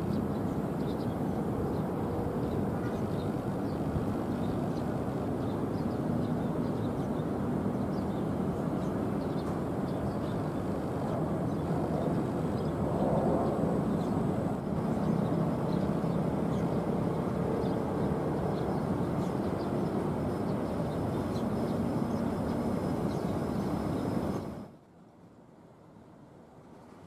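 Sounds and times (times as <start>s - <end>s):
jet engines rumbling with whine: 0.0s - 27.0s.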